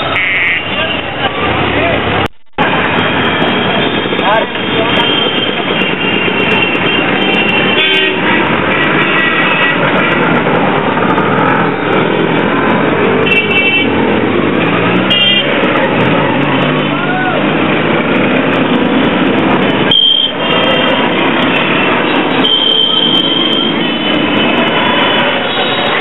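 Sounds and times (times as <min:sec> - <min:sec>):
dense street traffic: 0:00.0 - 0:26.0
car horn toots: 0:00.1 - 0:00.7, 0:03.2 - 0:10.2, 0:15.1 - 0:15.6, 0:19.8 - 0:24.6.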